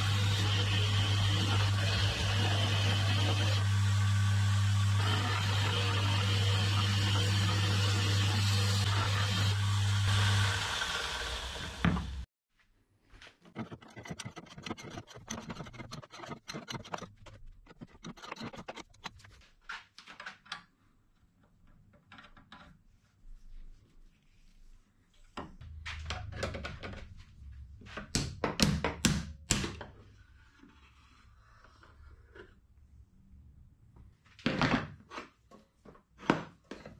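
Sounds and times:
belt grinder grinding steel: 0:00.0 - 0:12.2, 0:13.5 - 0:19.1
motor winding down: 0:00.0 - 0:12.2
metal parts clicking and scraping: 0:13.5 - 0:19.3.

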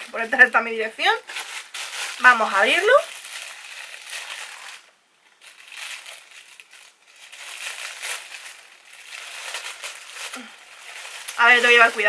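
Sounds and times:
plastic crinkling and rustling: 0:00.0 - 0:12.0
scissors cutting plastic bag: 0:05.5 - 0:12.0.

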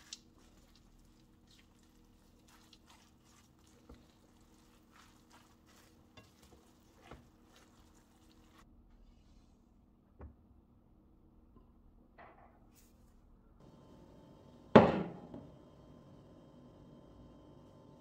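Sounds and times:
spatula stirring food in pan: 0:00.0 - 0:08.6.

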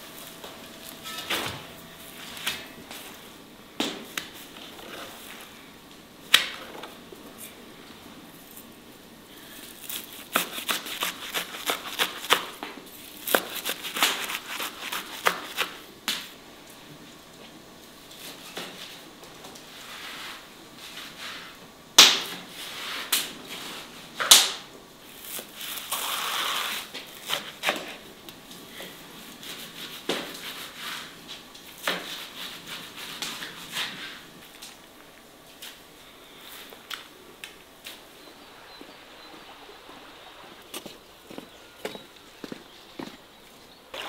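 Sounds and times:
loud snaps: 0:24.2 - 0:24.7.

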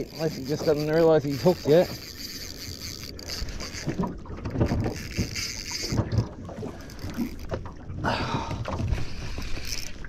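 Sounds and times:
water slapping against boat hull: 0:03.5 - 0:10.0.

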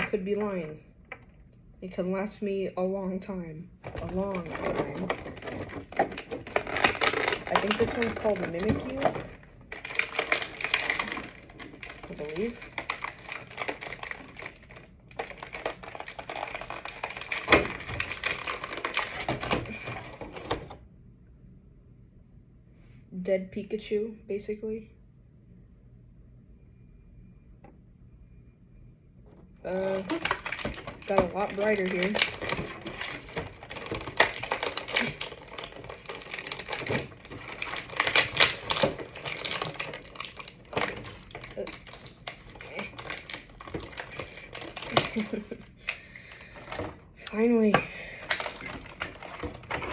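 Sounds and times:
plastic packaging crinkling: 0:03.8 - 0:20.8, 0:29.7 - 0:49.9.

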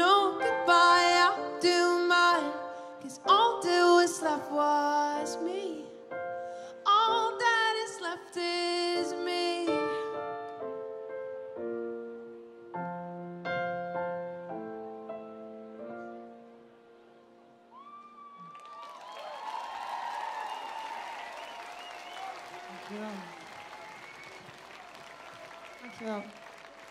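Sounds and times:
woman singing: 0:00.0 - 0:06.0, 0:06.8 - 0:10.2
keyboard piano chords: 0:00.0 - 0:17.7.

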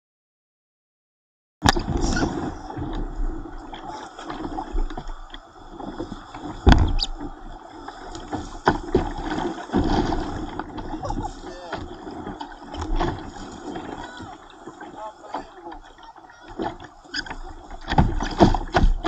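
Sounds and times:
whitewater rushing and splashing: 0:01.7 - 0:19.0
knocks against kayak hull: 0:06.5 - 0:07.2, 0:08.3 - 0:14.3, 0:16.6 - 0:19.0.

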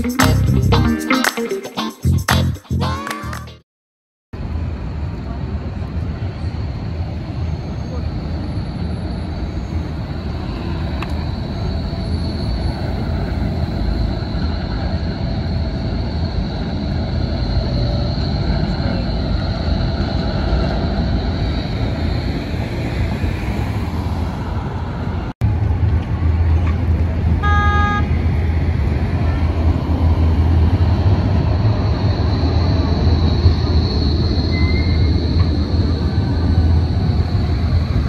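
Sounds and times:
city street traffic: 0:04.4 - 0:38.0
tram rolling with high whine: 0:04.4 - 0:38.0
short pitched beep: 0:27.4 - 0:28.1.

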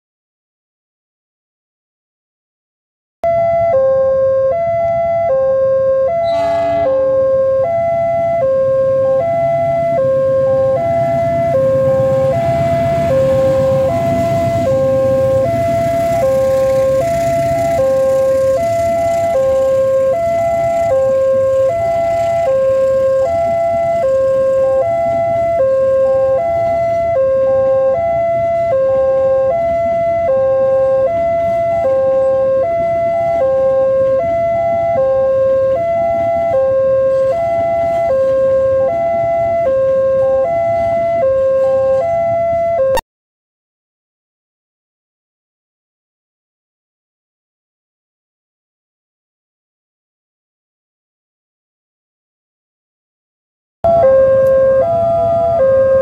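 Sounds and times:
locomotive horn blast: 0:06.1 - 0:07.6.

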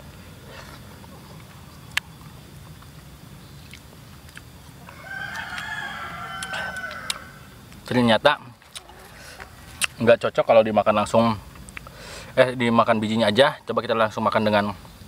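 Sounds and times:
rooster crowing: 0:04.8 - 0:07.6, 0:08.8 - 0:09.8.

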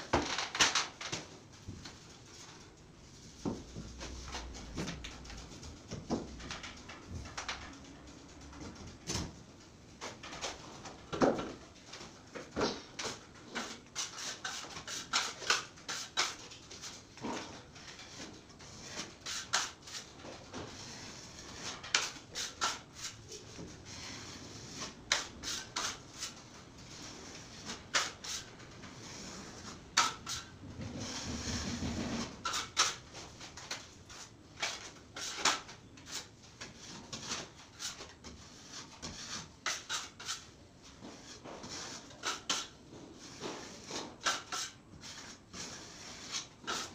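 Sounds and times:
putty knife scraping and tapping: 0:41.1 - 0:45.4.

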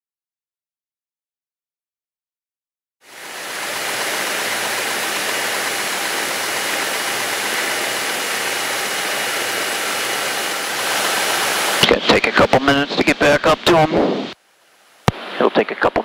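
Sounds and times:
airplane engine and propeller drone: 0:03.0 - 0:14.4.

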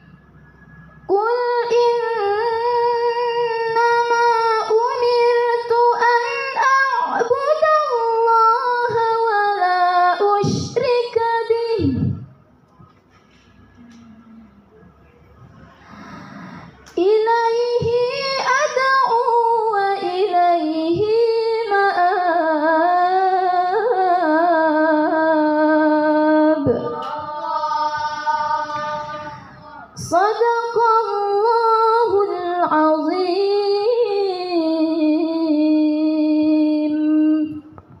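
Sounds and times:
woman reciting melodically: 0:01.0 - 0:38.0.

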